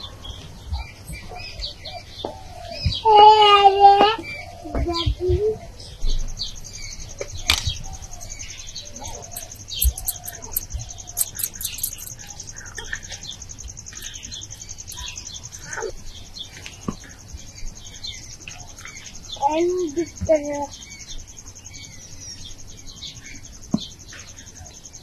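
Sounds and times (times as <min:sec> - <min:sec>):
birds chirping: 0:00.0 - 0:25.0
high fast-pulsing insect trill: 0:08.1 - 0:12.7, 0:13.4 - 0:16.2.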